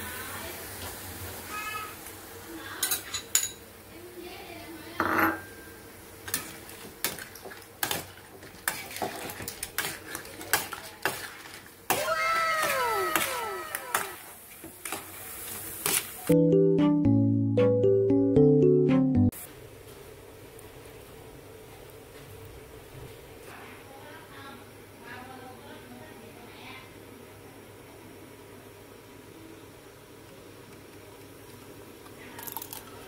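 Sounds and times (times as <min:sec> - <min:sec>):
overlapping falling tones: 0:16.4 - 0:19.3.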